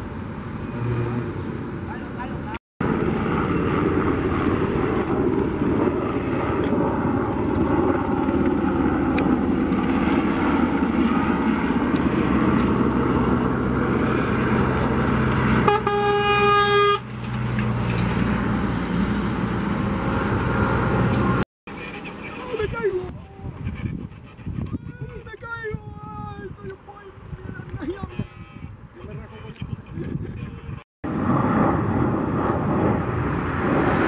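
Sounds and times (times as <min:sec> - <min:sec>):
helicopter rotor rumble: 0:01.6 - 0:34.0
horn sounding: 0:15.6 - 0:17.1.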